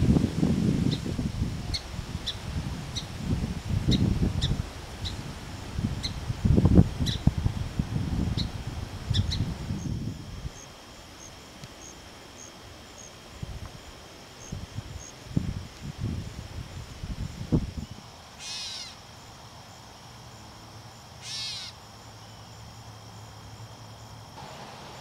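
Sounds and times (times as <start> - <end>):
wind rumble on microphone: 0.0 - 10.6, 13.3 - 18.2
faint high hum: 0.0 - 25.0.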